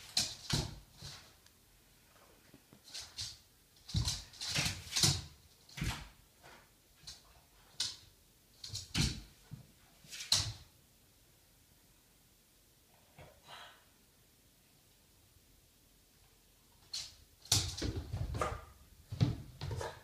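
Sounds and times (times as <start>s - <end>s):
dog paws scrabbling on wooden floor: 2.4s - 10.7s, 16.8s - 20.0s.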